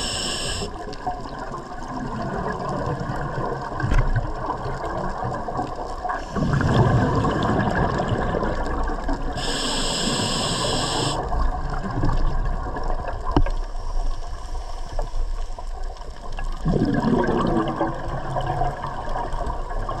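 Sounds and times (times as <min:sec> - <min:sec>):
hissing inhale through regulator: 0:00.0 - 0:00.9, 0:09.3 - 0:11.4
air bubbling underwater: 0:06.4 - 0:08.7, 0:16.6 - 0:19.0.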